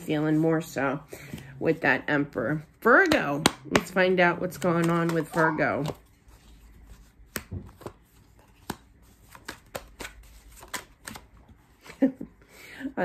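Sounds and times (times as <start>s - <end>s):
cards being shuffled: 3.1s - 12.1s.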